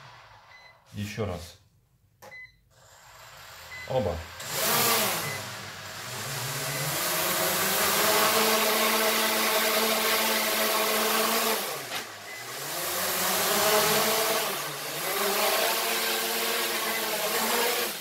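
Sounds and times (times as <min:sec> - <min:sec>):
drone motors whirring: 0:04.4 - 0:18.0.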